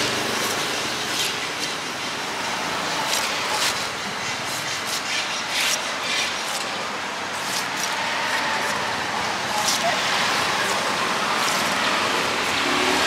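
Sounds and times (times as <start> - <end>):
knife cutting pineapple: 0.0 - 2.1, 2.8 - 13.0
street traffic: 0.0 - 13.0.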